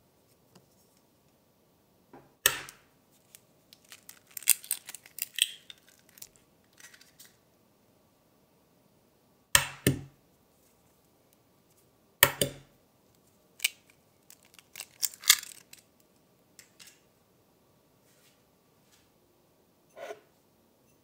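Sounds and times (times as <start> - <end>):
eggs cracking: 2.5 - 7.3, 13.6 - 15.9
eggshell crackling: 3.2 - 7.3, 13.6 - 15.8.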